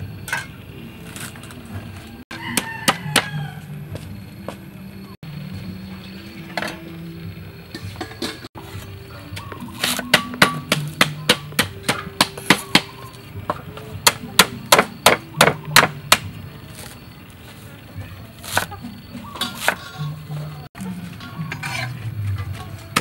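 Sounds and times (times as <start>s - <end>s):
cleaver chopping on wooden board: 9.8s - 13.0s, 14.0s - 16.3s.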